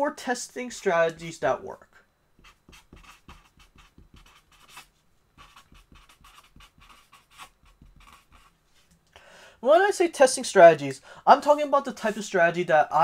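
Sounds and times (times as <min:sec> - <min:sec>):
marker scratching on paper: 0:02.4 - 0:08.5.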